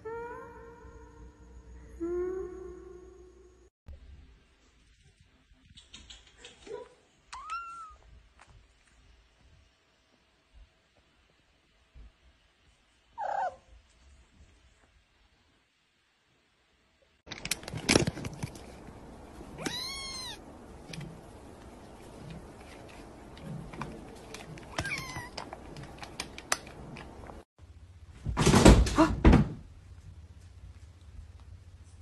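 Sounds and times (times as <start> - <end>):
kitten meowing: 7.3 - 8.0, 19.6 - 20.4, 24.7 - 25.4.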